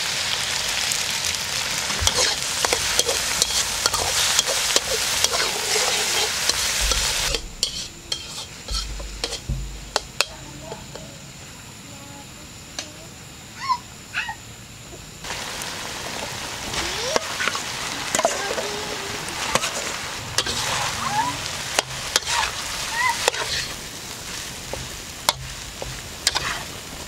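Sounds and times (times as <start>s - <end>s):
rice sizzling in a wok: 0.0s - 13.8s, 15.1s - 27.0s
metal spatula scraping wok: 2.0s - 11.1s, 19.4s - 26.8s.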